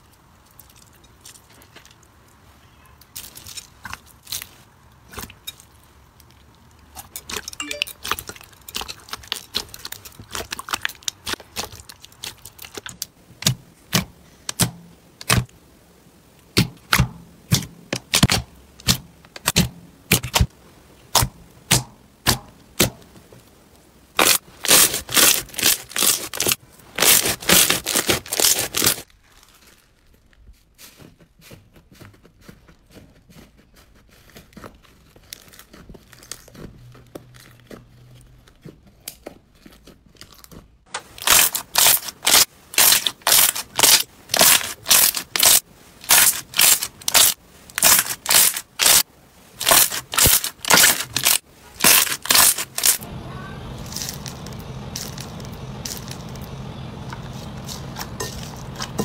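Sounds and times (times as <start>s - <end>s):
soft slime squishing: 0.0s - 14.6s, 23.0s - 53.0s
slime popping and crackling: 6.2s - 15.5s, 24.2s - 30.3s, 34.9s - 37.8s, 39.0s - 53.0s.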